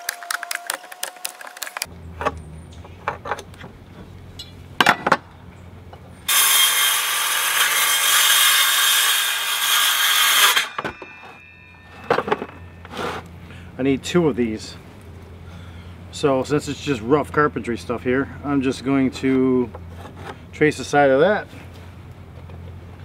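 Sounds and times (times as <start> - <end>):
circular saw cutting wood: 6.3 - 13.3.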